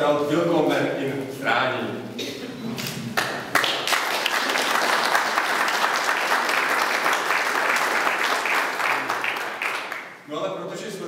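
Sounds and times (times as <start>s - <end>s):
applause: 3.2s - 10.2s.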